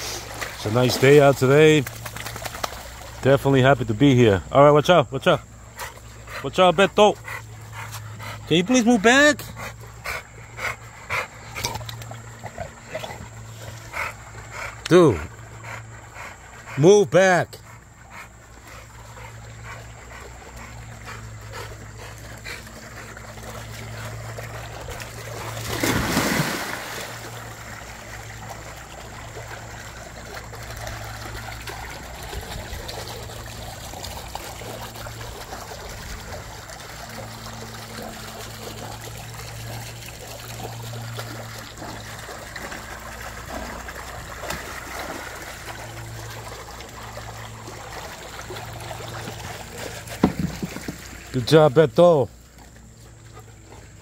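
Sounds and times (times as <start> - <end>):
dog splashing into pool: 0.0 - 4.2, 17.8 - 51.6
water trickling and lapping: 0.0 - 54.0.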